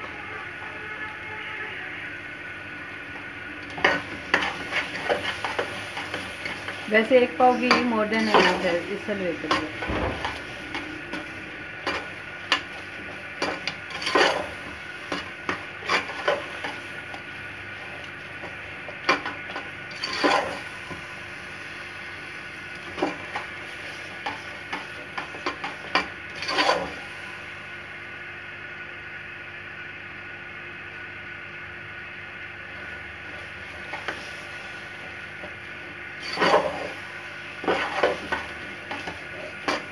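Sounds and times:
low sizzle: 0.0 - 39.9
metal spoon scraping a pot: 13.4 - 16.8, 19.1 - 20.6, 25.2 - 27.0, 36.2 - 37.0.

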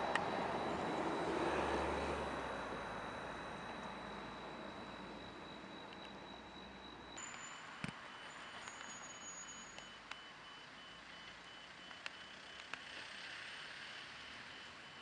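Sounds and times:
short high electronic beeps: 3.1 - 12.5.

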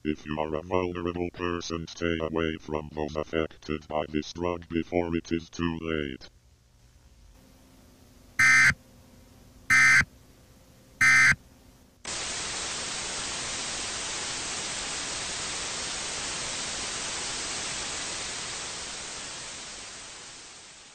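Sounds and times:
television static hiss: 0.0 - 8.8, 9.7 - 10.3, 11.0 - 20.9
electronic alert beeps: 8.4 - 8.8, 9.7 - 10.0, 11.0 - 11.4.

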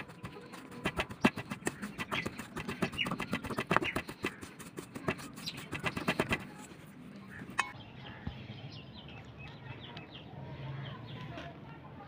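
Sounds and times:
stone knocking and scraping metal bowl: 7.5 - 7.8.

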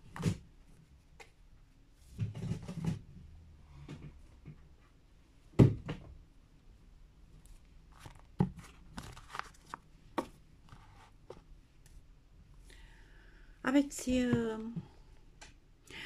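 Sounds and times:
cards clicking and rustling: 8.0 - 10.3.

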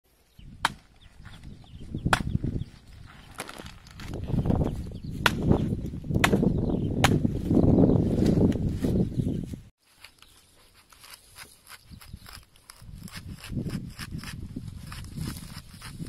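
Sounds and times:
machete chopping plant stalk: 0.6 - 0.9, 5.2 - 5.6, 6.2 - 7.4
leaves rustling: 7.3 - 16.0.

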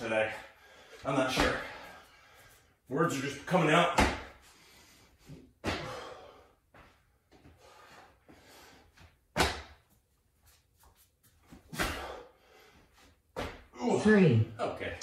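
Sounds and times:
heavy landing thuds: 3.9 - 4.4.

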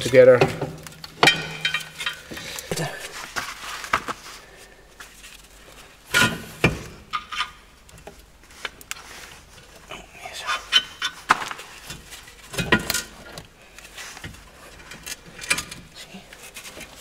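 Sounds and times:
metallic clinks and knocks: 0.8 - 2.4.

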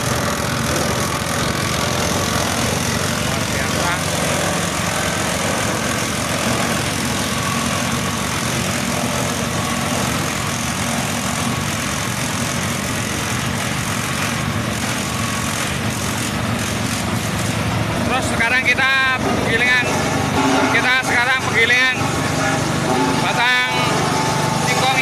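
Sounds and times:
grass being chopped: 0.0 - 17.8
small engine running: 0.0 - 25.0.

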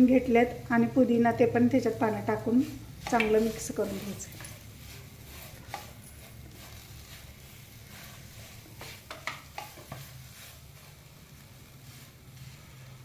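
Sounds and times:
spatula scraping frying pan: 1.4 - 13.0
taps against pan: 3.0 - 3.4, 9.1 - 10.0.

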